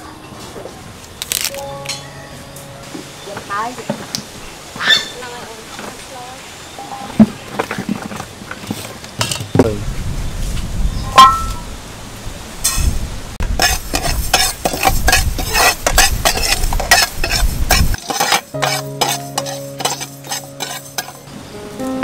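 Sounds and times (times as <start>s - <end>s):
ladle scraping rice in pan: 13.6s - 21.3s.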